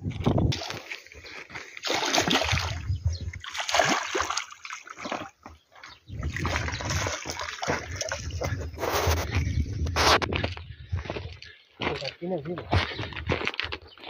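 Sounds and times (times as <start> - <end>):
fish splashing in water: 1.6 - 5.4, 6.2 - 9.0.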